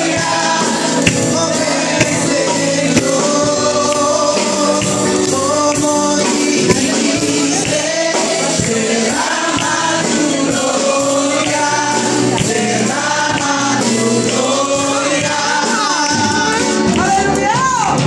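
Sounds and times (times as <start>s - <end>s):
women singing along: 0.0s - 17.7s
man singing into microphone: 0.0s - 18.0s
musical accompaniment: 0.0s - 18.0s.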